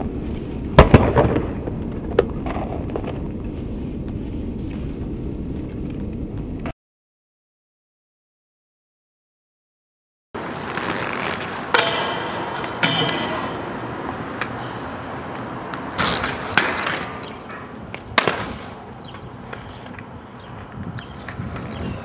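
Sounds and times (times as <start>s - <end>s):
rollerblades scraping on metal rail: 10.4s - 22.0s.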